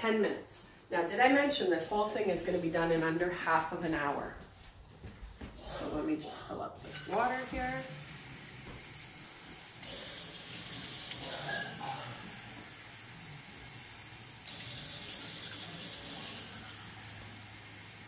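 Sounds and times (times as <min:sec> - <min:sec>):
faucet running water into cup: 0:06.8 - 0:18.0.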